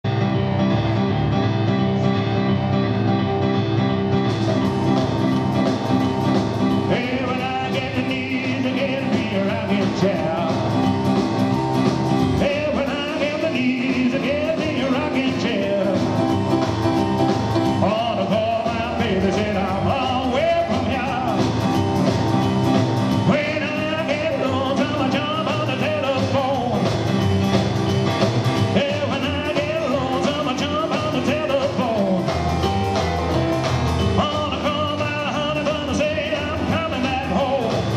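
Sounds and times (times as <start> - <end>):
drums: 0.0 - 37.9
electric keyboard piano: 0.0 - 37.9
upright double bass: 0.0 - 37.9
man singing: 6.7 - 11.1, 12.2 - 16.4, 17.6 - 21.7, 23.1 - 27.0, 28.6 - 32.4, 34.0 - 37.9.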